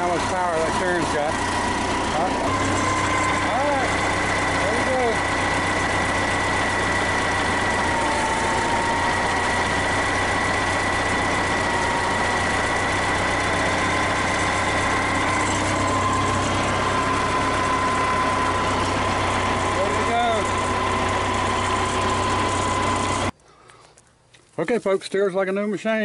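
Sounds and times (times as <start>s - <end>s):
high whine: 0.0s - 23.3s
backhoe engine idling: 0.0s - 23.4s.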